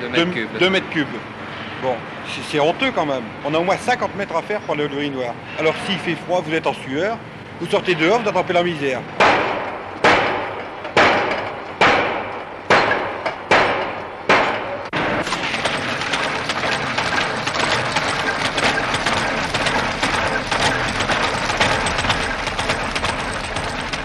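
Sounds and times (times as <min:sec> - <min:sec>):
heavy machine strikes: 0:09.2 - 0:24.0
belt-driven machinery running: 0:14.9 - 0:24.0.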